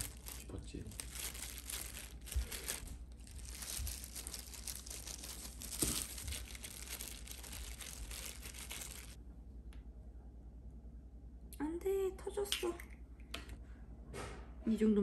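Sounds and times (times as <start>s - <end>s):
plastic glove crinkling: 0.0s - 9.2s.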